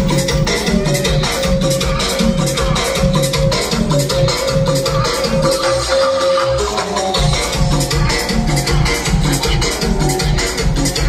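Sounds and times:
latin dance music: 0.0 - 11.0.

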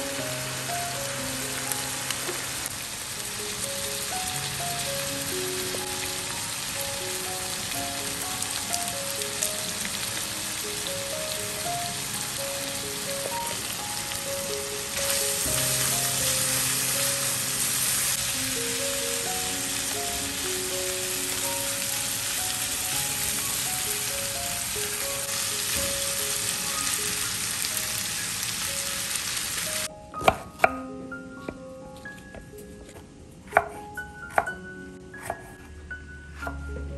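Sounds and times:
meat and onions sizzling in a pan: 0.0 - 29.9
knife chopping on wooden board: 30.2 - 30.8, 32.3 - 34.5, 35.2 - 35.7.

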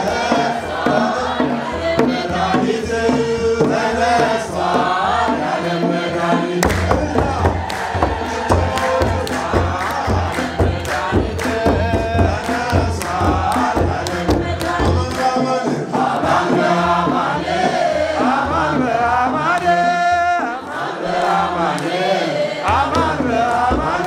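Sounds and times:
congregation chanting: 0.0 - 24.0
drums beating: 0.0 - 24.0
hand-clapping: 6.6 - 15.7, 19.5 - 19.9, 20.6 - 24.0.

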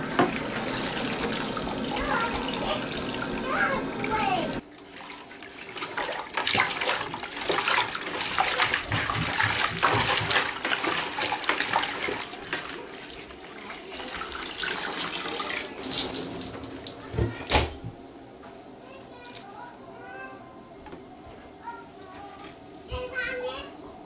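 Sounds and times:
water sloshing in bucket: 0.0 - 17.4
water pouring and dripping: 14.0 - 17.0.

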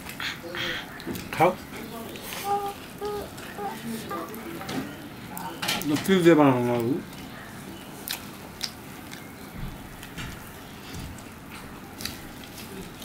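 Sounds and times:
person chewing crunchy food: 8.0 - 9.3, 10.0 - 13.0.

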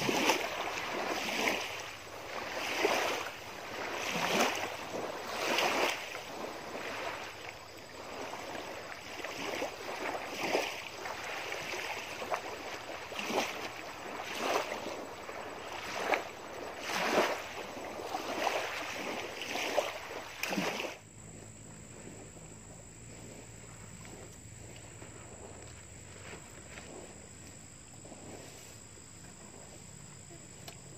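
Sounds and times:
faint hum: 0.0 - 30.9
waves lapping on a shore: 0.0 - 30.9.

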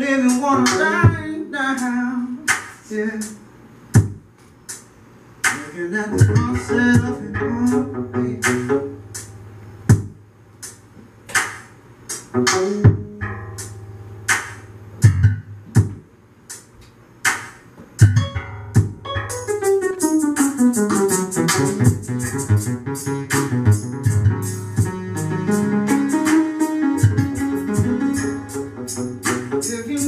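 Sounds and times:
steady low hum: 0.0 - 30.0
electronic music sharp hits: 5.4 - 16.0, 17.3 - 30.0
synthesizer notes stepping down: 5.5 - 10.2, 18.0 - 30.0.

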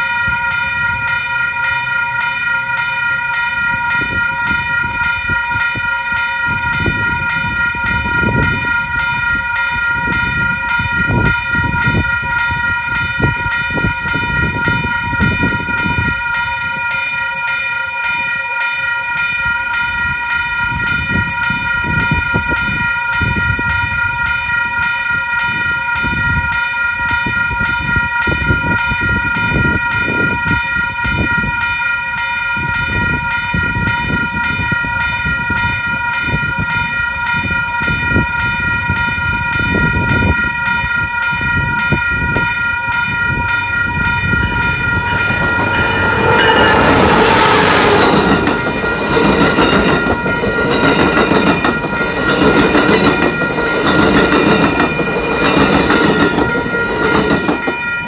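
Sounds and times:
railroad crossing bell ringing: 0.0 - 58.0
train passing with rush: 0.0 - 58.0
train wheels clattering on rails: 39.6 - 58.0.

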